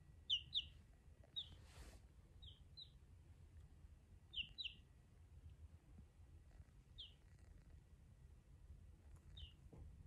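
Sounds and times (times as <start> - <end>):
chick peeping: 0.2 - 3.1, 4.3 - 5.0, 6.5 - 7.8, 9.1 - 9.8
soft rustle: 0.8 - 2.2.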